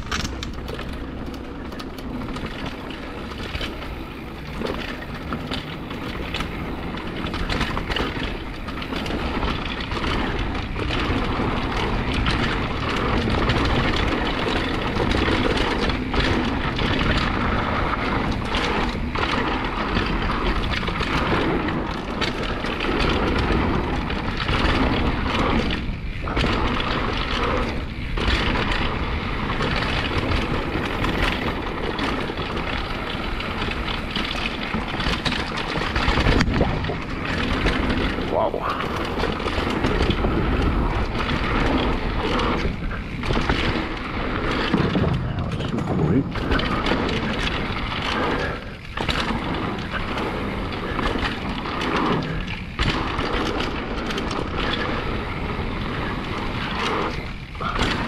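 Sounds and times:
bike rattling and knocking: 0.0s - 58.0s
tyre and wind noise: 0.0s - 58.0s.

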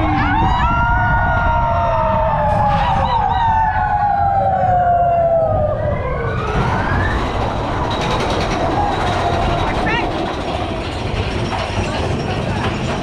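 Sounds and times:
riders whooping: 0.0s - 9.9s
roller coaster rumbling on track: 0.0s - 13.0s.

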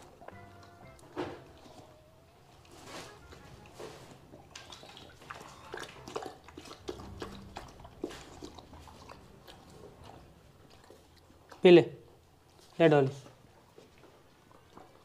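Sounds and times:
dog lapping water from bowl: 4.3s - 12.8s, 13.4s - 15.0s.

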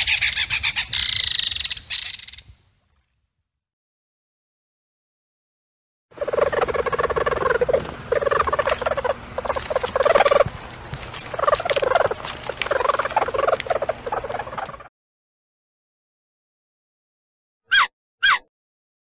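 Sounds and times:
stoat chattering: 6.2s - 14.9s.

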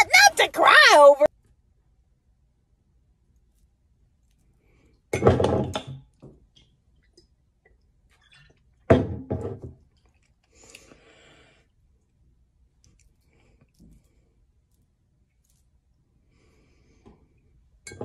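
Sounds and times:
liquid sloshing in glass bottle: 8.0s - 8.9s.

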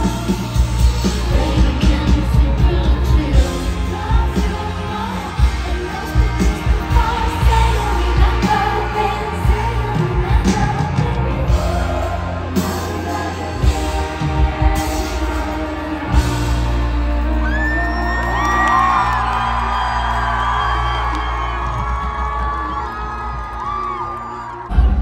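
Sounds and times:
female singer singing: 0.0s - 19.2s
amplified band with heavy bass: 0.0s - 25.0s.

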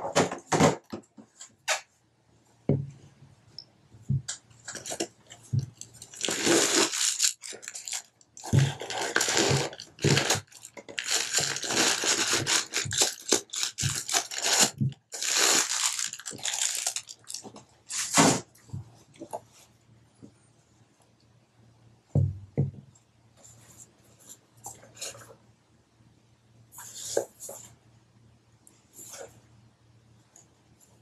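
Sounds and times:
paper rustling and crinkling: 4.6s - 18.5s.

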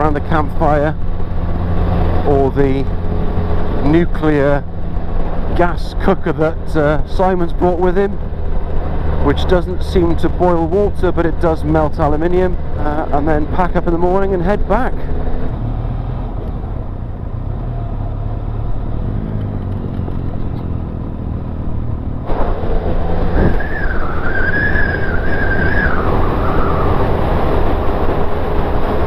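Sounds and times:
motorcycle engine running: 12.3s - 23.5s
wind rush on microphone: 19.4s - 29.0s.

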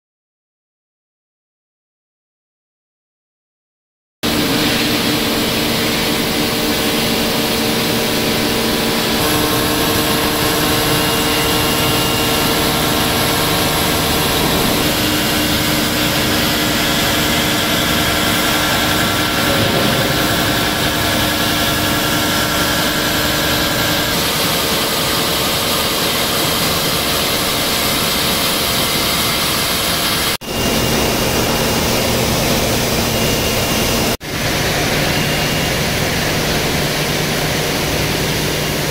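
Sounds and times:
milling machine cutting steel: 4.3s - 34.1s.

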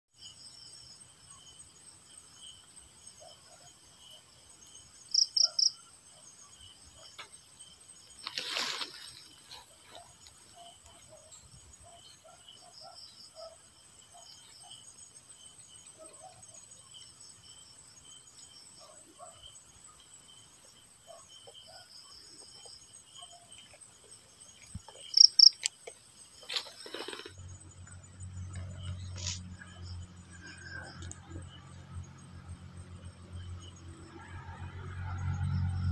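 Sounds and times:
crickets chirping: 0.1s - 35.9s
rustle: 7.1s - 10.9s, 23.6s - 27.9s.

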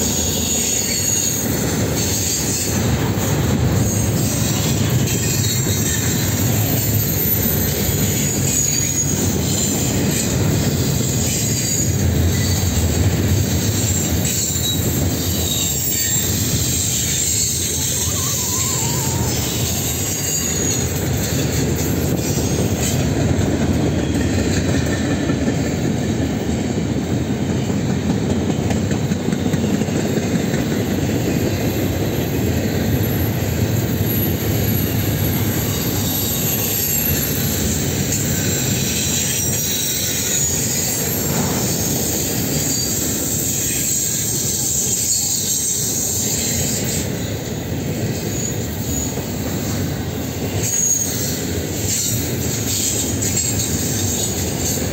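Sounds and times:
wheel flange squeal: 0.0s - 23.0s, 33.9s - 47.6s, 48.2s - 49.8s, 50.4s - 54.9s
train wheels rumbling on rails: 0.0s - 54.9s.

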